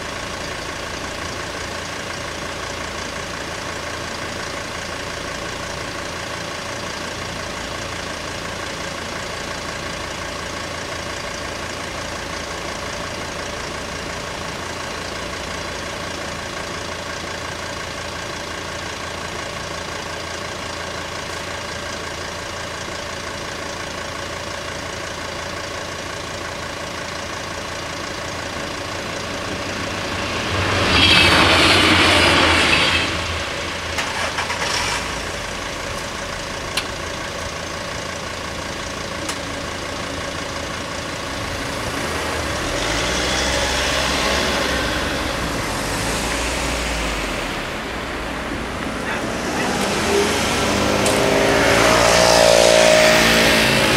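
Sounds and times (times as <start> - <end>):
car engines idling: 0.0 - 53.9
loud rushing sound: 29.3 - 34.2.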